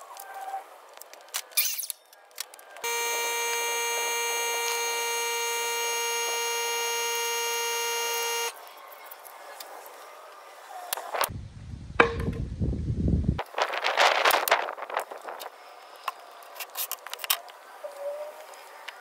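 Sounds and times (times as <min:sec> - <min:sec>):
loud buzzing tone: 0:02.8 - 0:08.6.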